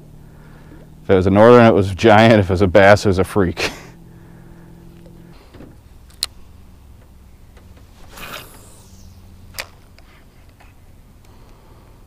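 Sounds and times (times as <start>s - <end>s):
electric trolling motor humming: 0.0s - 12.0s
brief swish: 7.9s - 9.7s
sharp click: 9.5s - 10.1s.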